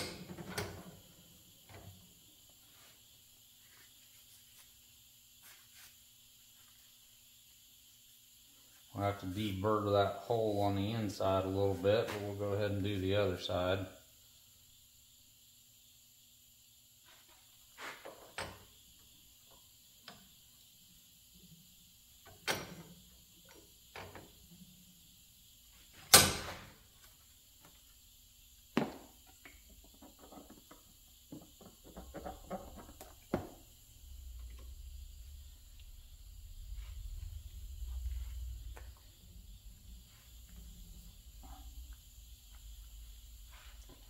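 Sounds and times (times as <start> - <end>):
hand tools and metal parts clunking: 29.0 - 33.6
low rumble: 33.8 - 43.2.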